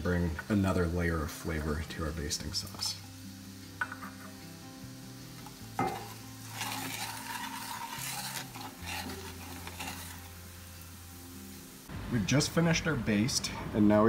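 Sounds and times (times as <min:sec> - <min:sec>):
butter sizzling: 0:00.0 - 0:13.3
wooden spoon scraping skillet: 0:05.4 - 0:10.9.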